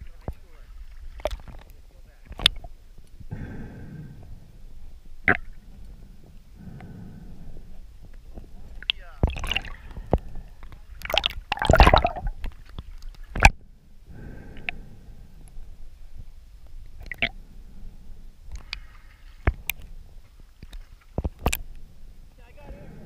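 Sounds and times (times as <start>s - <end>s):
underwater water rushing: 8.6s - 13.6s
camera breaking water surface: 11.0s - 12.4s.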